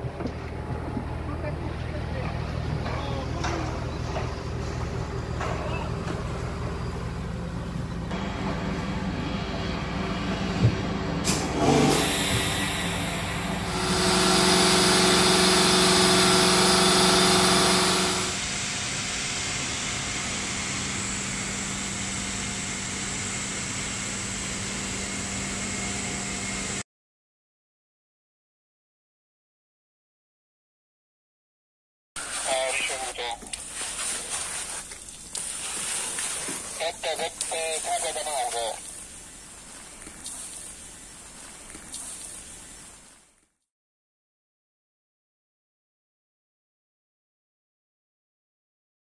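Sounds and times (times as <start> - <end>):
spraying equipment humming: 12.3 - 18.6, 32.2 - 42.8.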